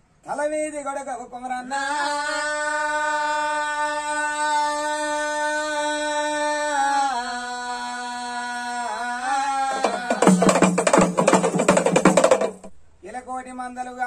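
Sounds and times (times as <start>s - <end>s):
fast drumming: 9.7s - 12.7s.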